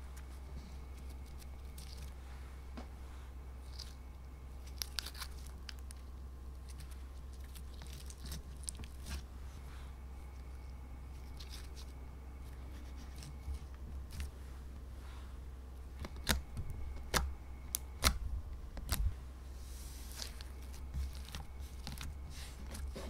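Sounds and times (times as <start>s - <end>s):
steady low hum: 0.0s - 23.0s
slime sticky crackles: 3.6s - 9.4s, 20.0s - 23.0s.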